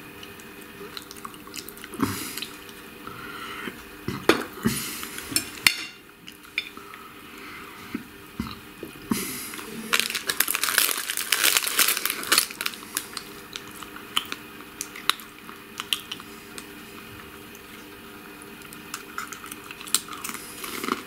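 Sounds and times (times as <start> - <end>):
crunching and crinkling: 9.5 - 21.0.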